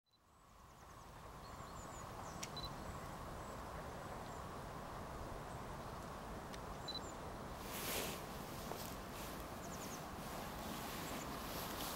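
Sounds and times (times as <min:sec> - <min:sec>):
faint high bird chirps: 0:00.1 - 0:03.6, 0:06.8 - 0:07.2
steady low outdoor rush: 0:00.2 - 0:11.9.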